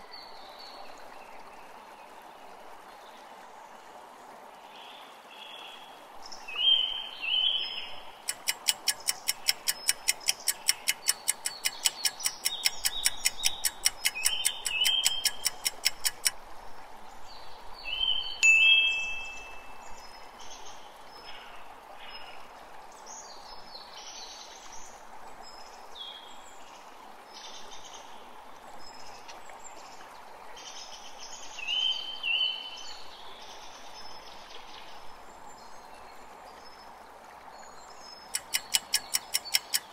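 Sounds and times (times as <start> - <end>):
running water: 0.0 - 39.9
birds chirping: 6.7 - 16.3, 18.0 - 20.1, 38.3 - 39.9
countdown timer ticking: 8.3 - 16.3, 38.4 - 39.9.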